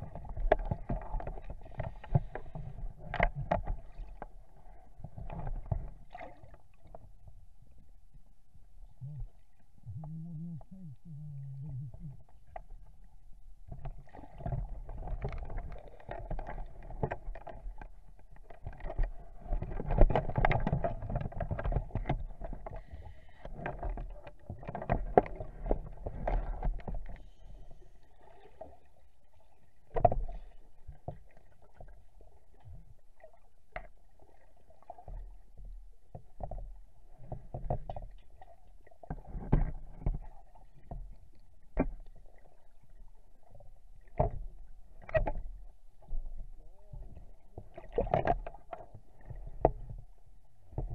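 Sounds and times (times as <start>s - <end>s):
underwater regulator bubbles: 8.9s - 12.6s.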